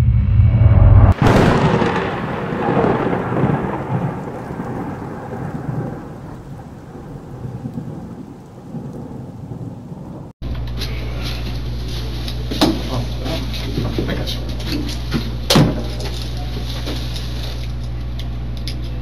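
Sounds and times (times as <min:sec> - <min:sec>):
thunder crack and rumble: 0:00.0 - 0:10.4
rain hiss: 0:01.2 - 0:17.9.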